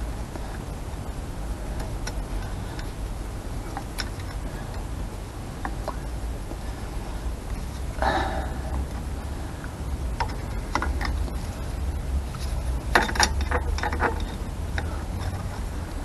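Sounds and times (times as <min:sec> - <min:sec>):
metal clicks and clinks: 0:12.9 - 0:15.5.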